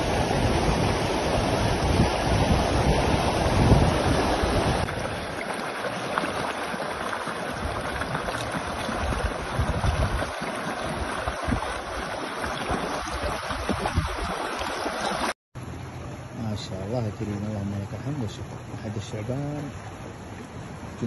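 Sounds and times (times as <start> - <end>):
wind gusting on microphone: 0.0 - 5.3, 7.6 - 14.6
flood water rushing: 0.0 - 15.4.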